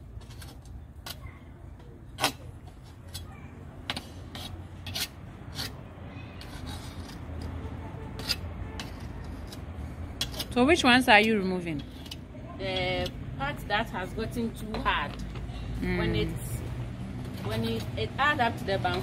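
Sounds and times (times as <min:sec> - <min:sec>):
knife scraping metal pot: 0:03.9 - 0:05.8, 0:06.4 - 0:12.2, 0:17.3 - 0:18.1.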